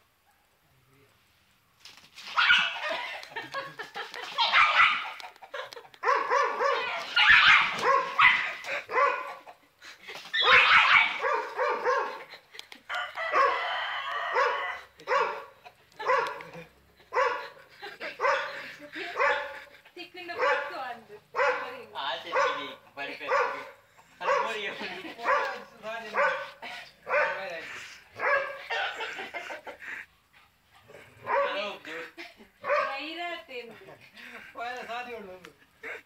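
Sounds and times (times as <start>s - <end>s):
small dog barking rapidly: 2.4s - 3.0s, 4.3s - 5.2s, 6.0s - 9.5s, 10.4s - 12.3s, 13.2s - 16.5s, 17.2s - 17.5s, 20.4s - 20.8s, 21.4s - 24.6s, 26.2s - 26.5s, 27.1s - 27.5s, 28.2s - 28.8s, 31.2s - 31.6s, 32.6s - 33.0s.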